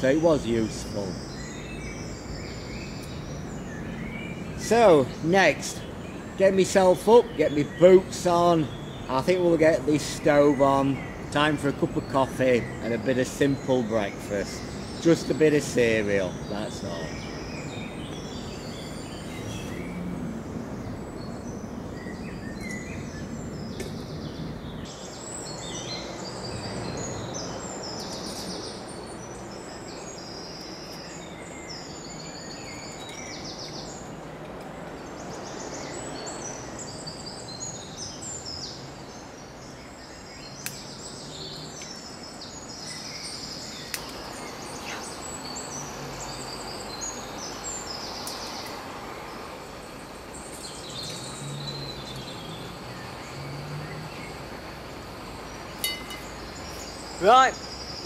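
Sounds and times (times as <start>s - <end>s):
small birds singing and chirping: 0.0s - 58.0s
steady background hiss: 0.0s - 58.0s
sharp clicks: 43.9s - 44.2s.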